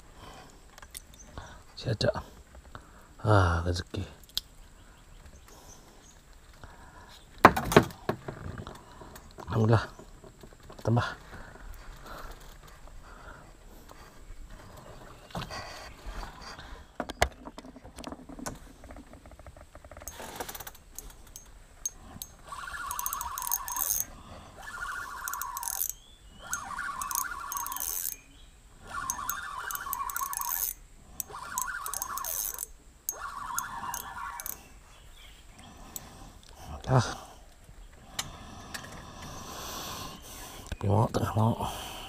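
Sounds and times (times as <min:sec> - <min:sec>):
fishing reel whirring and clicking: 0:19.9 - 0:34.7.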